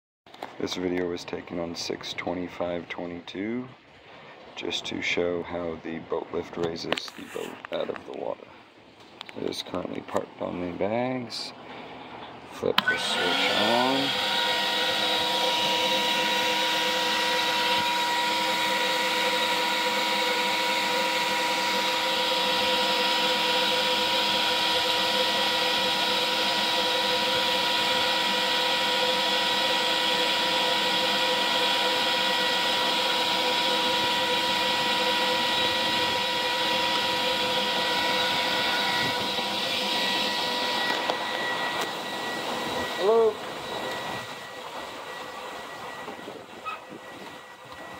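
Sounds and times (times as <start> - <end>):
electric air blower whining: 12.7 - 47.9.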